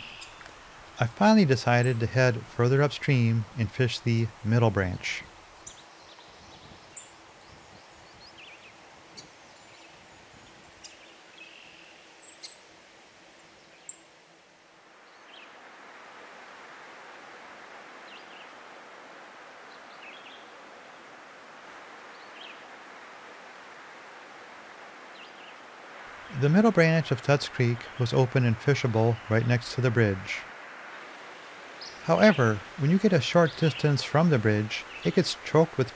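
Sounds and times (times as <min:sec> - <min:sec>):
bird chirps: 0:00.0 - 0:00.5
faint steady hum: 0:00.0 - 0:35.9
steady hiss: 0:00.0 - 0:35.9.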